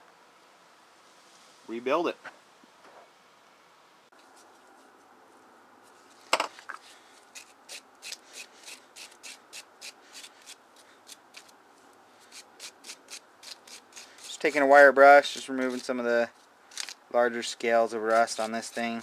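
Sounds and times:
wire brush scraping metal: 0:12.2 - 0:16.9.

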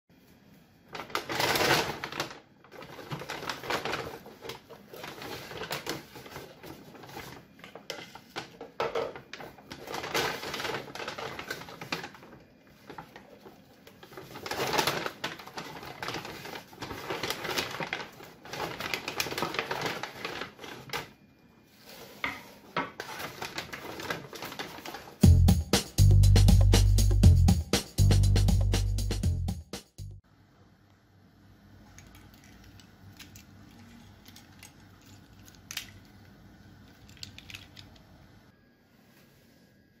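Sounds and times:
paper bag rustling and crinkling: 0:00.2 - 0:25.2.

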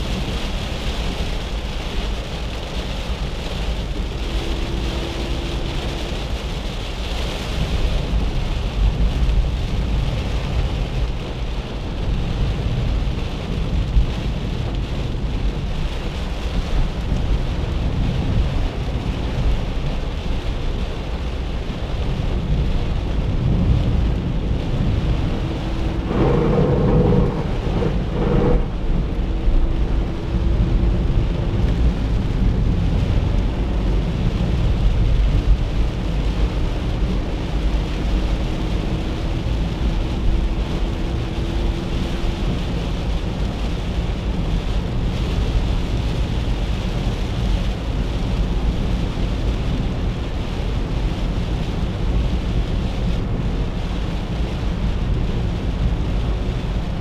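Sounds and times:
car engine and tyres on wet road: 0:00.0 - 0:57.0
rain pattering on car body: 0:00.0 - 0:57.0.

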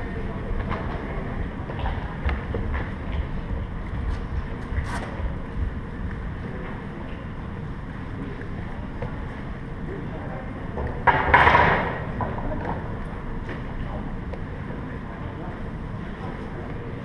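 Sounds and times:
wind noise on microphone: 0:00.6 - 0:07.9.

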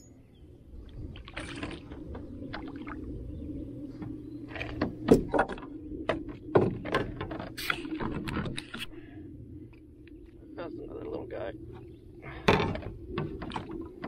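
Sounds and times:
steady low rumble: 0:00.0 - 0:14.0
knocks and clatter in a canoe: 0:01.2 - 0:03.0, 0:03.9 - 0:08.8, 0:11.7 - 0:14.0.

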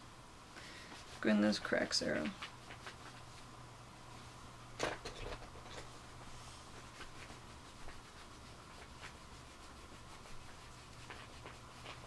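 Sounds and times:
paintbrush scratching on ceramic: 0:06.7 - 0:12.0.

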